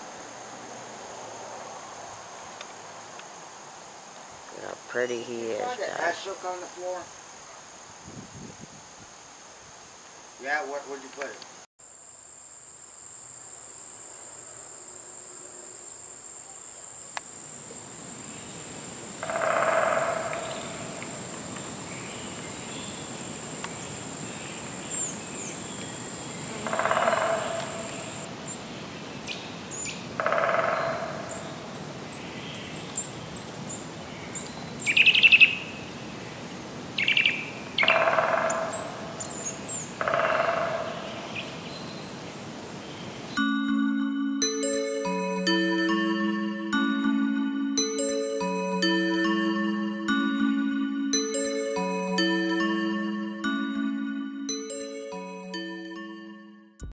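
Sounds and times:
high-pitched insect drone: 0:12.2 - 0:28.4
bird calling: 0:19.3 - 0:23.1, 0:37.0 - 0:42.1
bird chirps: 0:19.3 - 0:23.1.

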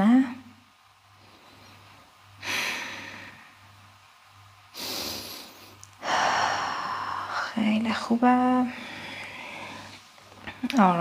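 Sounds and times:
person breathing: 0:01.2 - 0:03.7, 0:04.7 - 0:07.7, 0:08.6 - 0:10.1.

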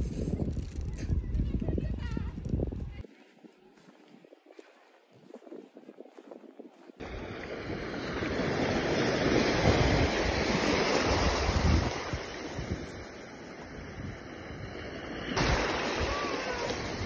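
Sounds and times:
wind buffeting microphone: 0:00.0 - 0:17.0
waves washing on sandy shore: 0:07.0 - 0:17.0.

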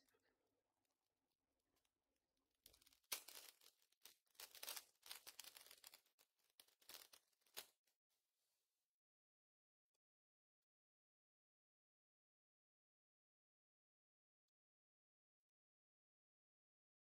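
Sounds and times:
foil wrapper tearing and crinkling: 0:02.7 - 0:07.7.

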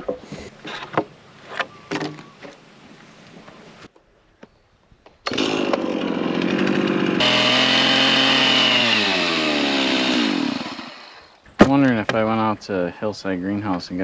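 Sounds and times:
chainsaw running and revving: 0:05.3 - 0:11.4.

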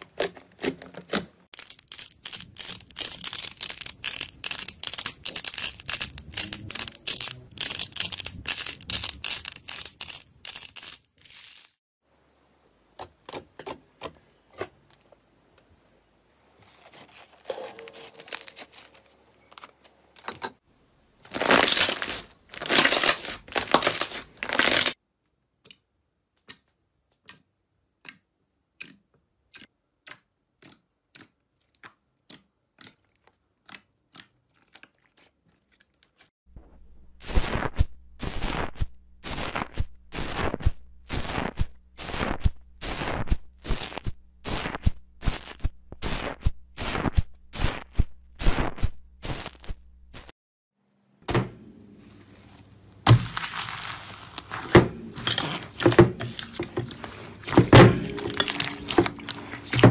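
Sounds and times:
tool crunching through foam slime: 0:00.0 - 0:11.8, 0:21.3 - 0:25.0, 0:37.2 - 0:50.3, 0:53.0 - 0:59.9.

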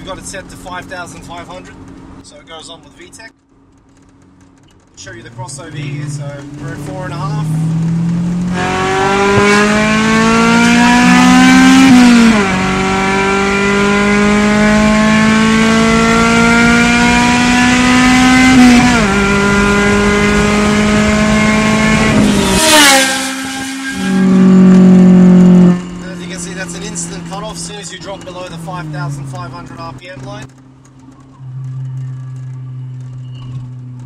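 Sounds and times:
car engine revving high: 0:05.0 - 0:30.6.

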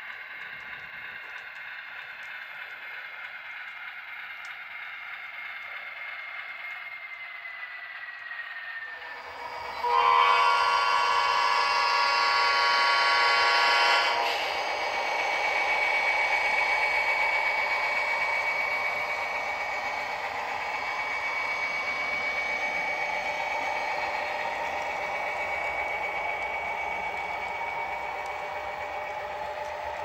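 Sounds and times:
faint clicks: 0:00.0 - 0:07.4
model train rolling on rails: 0:00.0 - 0:30.0
high-pitched whine: 0:04.4 - 0:30.0.

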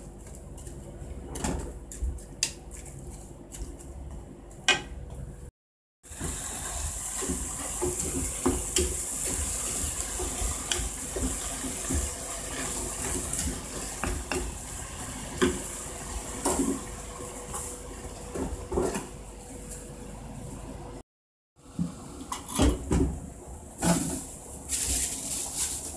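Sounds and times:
food simmering and sizzling: 0:06.0 - 0:18.4.

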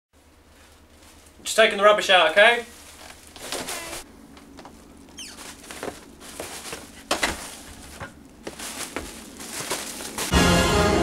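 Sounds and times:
plastic bin bag rustling: 0:00.2 - 0:10.4
footsteps: 0:02.6 - 0:10.4
scuffs and knocks: 0:02.7 - 0:10.3.

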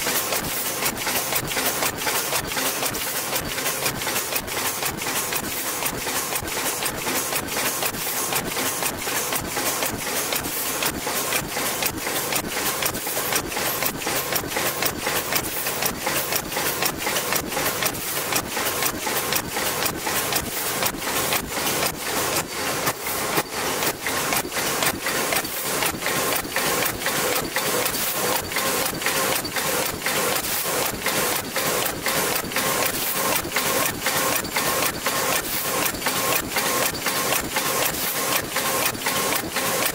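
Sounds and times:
fast mechanical clatter of machine: 0:00.0 - 0:39.9.

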